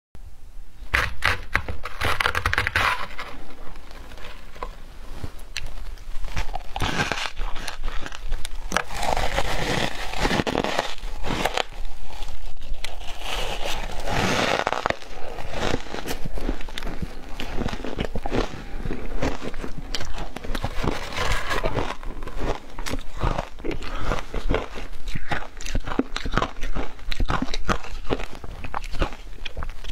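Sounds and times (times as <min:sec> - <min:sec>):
shaved ice crunching: 0:05.6 - 0:29.9
metal spoon scraping plastic tub: 0:19.5 - 0:23.1.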